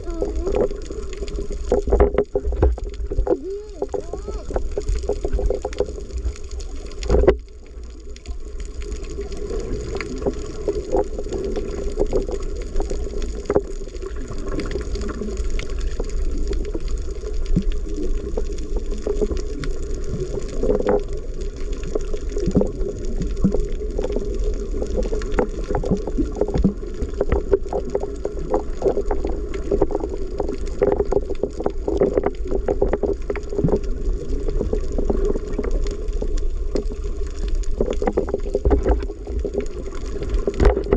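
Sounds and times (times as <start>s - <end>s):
muffled underwater rumble: 0.0s - 40.9s
underwater clicks and crackles: 0.0s - 40.9s.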